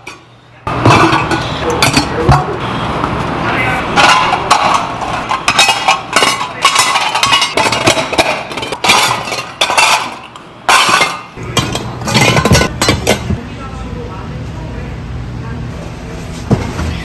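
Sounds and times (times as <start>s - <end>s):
metal bowls clinking and clattering: 0.0s - 2.5s, 4.0s - 13.4s.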